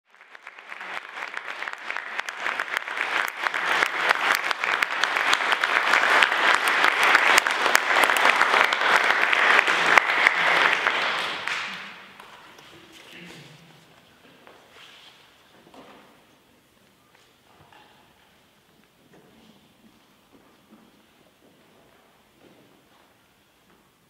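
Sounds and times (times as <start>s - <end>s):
audience applauding: 0.0s - 12.5s.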